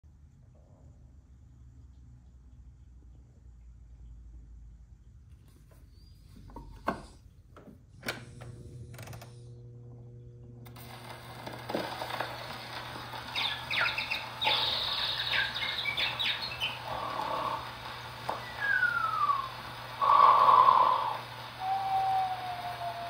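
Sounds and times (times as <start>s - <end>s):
scratchy record surface hiss: 10.7s - 23.0s
chirping bird calls: 12.0s - 23.0s.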